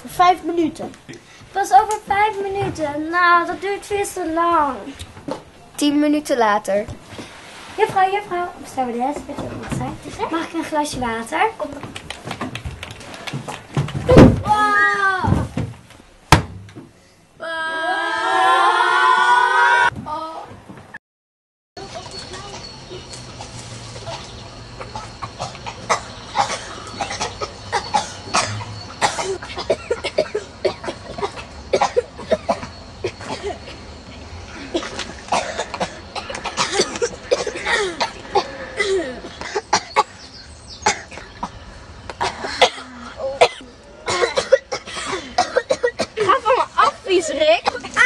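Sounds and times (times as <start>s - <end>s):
children moaning and crying: 17.4s - 20.6s, 34.4s - 39.7s, 42.2s - 47.1s
children coughing: 24.0s - 33.8s, 34.6s - 40.2s, 40.8s - 41.6s, 42.2s - 46.6s.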